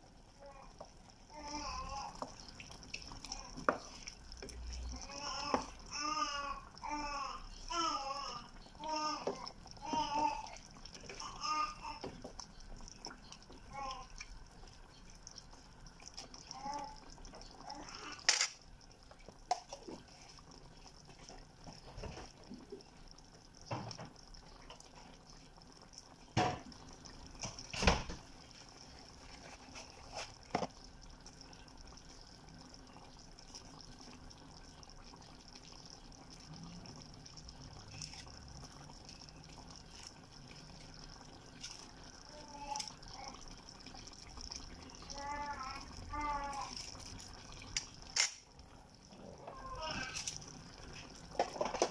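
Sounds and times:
stew simmering bubbling hiss: 0.0 - 51.9.

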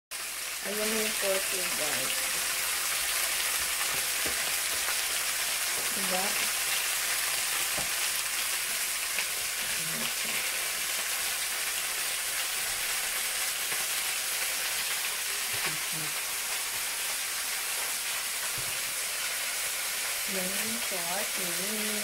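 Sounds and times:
meat sizzling in hot oil: 0.1 - 22.0.

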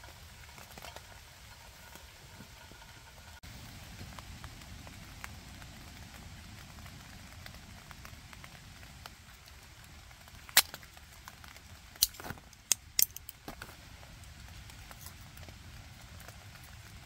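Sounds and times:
light rain patter: 0.0 - 17.0.

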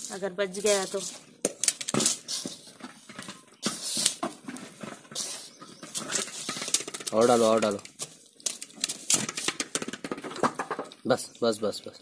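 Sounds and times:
vegetables and flour rustling: 0.0 - 1.4, 2.0 - 9.5
scraping against steel bowl: 2.0 - 7.8.

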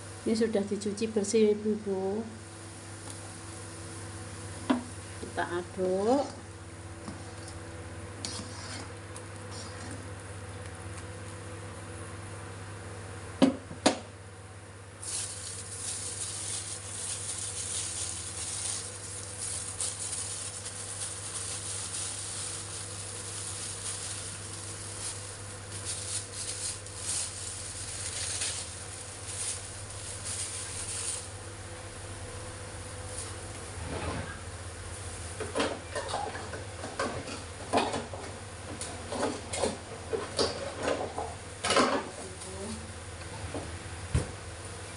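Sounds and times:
steady low hum: 0.0 - 37.6.

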